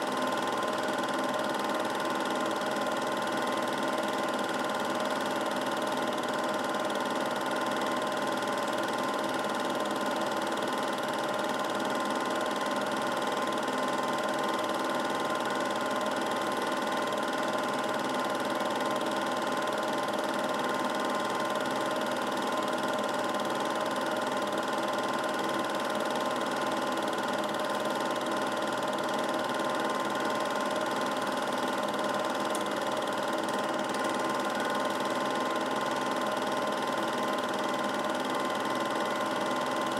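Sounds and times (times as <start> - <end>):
film projector whirring: 0.0 - 39.9.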